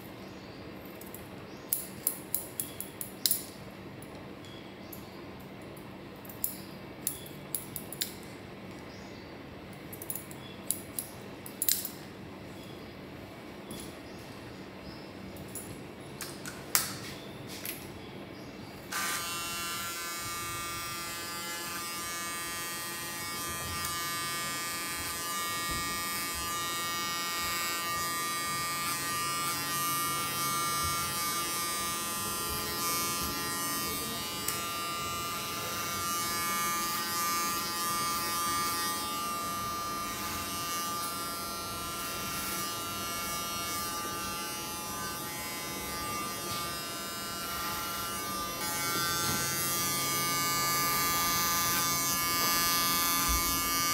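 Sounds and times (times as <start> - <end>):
electric hair clippers buzzing: 18.9 - 53.9.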